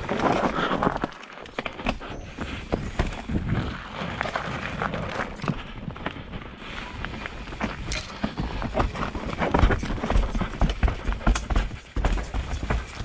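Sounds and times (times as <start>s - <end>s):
tyres crunching over stones: 0.0s - 13.0s
bike clattering: 7.5s - 13.0s.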